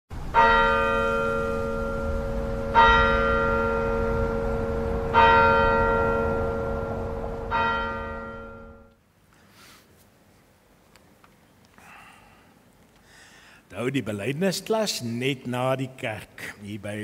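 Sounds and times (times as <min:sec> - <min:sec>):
church bell tolling: 0:00.3 - 0:08.9.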